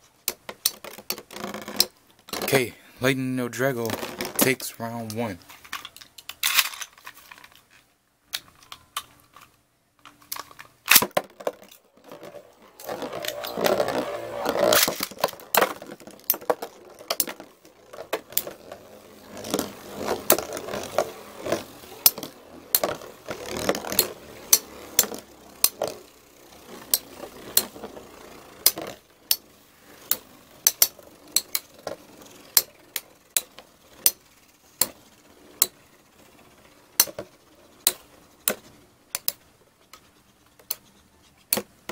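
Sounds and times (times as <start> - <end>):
spinning tops whirring on plastic: 3.8 - 4.6, 10.3 - 39.6
spinning tops clicking together: 11.7 - 39.4.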